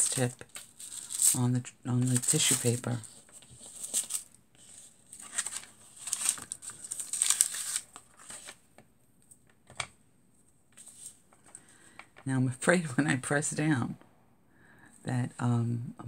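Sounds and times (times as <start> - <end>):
paper and foil rustling: 0.0 - 8.6.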